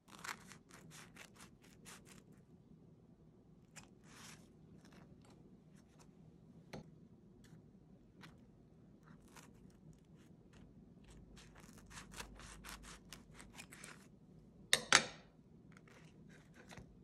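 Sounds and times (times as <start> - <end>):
scissors snipping sandwich: 0.0 - 2.4, 9.0 - 14.1.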